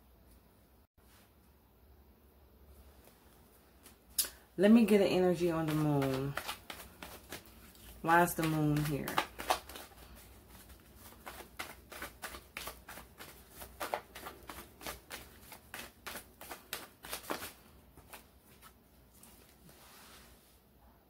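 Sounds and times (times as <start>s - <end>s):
cards being shuffled: 5.3s - 19.6s.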